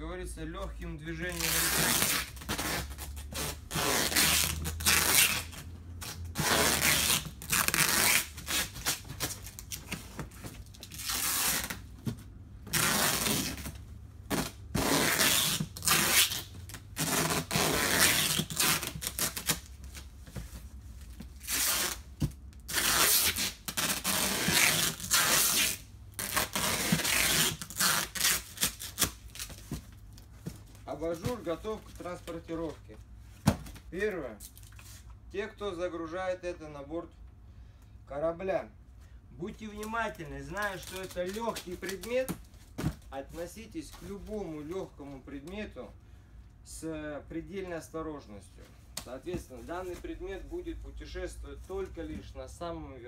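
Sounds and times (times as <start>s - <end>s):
rubbing and scraping of cardboard: 1.2s - 32.7s
packing tape ripping off roll: 1.3s - 10.0s, 10.6s - 11.9s, 12.7s - 20.0s, 21.4s - 29.7s.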